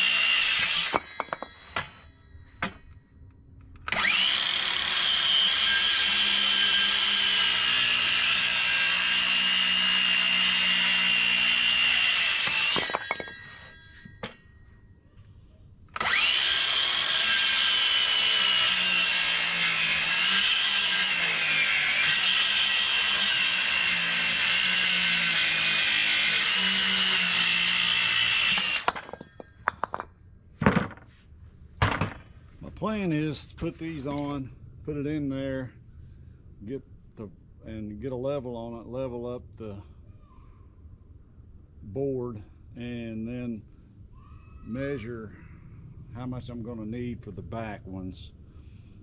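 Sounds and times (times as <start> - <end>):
circular saw cutting wood: 0.0 - 2.1, 3.8 - 14.3, 16.0 - 30.1.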